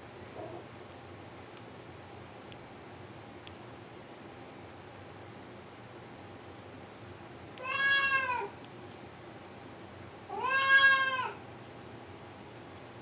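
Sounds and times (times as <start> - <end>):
cat meowing: 7.6 - 8.6, 10.3 - 11.4.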